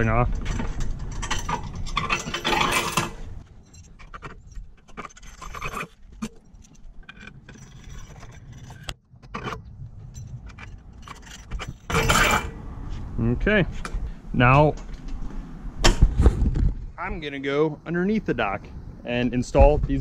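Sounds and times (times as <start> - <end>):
metal hardware clinking: 0.3 - 12.6.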